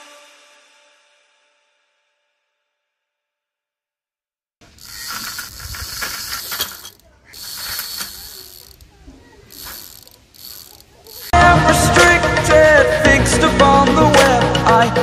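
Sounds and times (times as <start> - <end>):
chain rattling: 4.6 - 11.4.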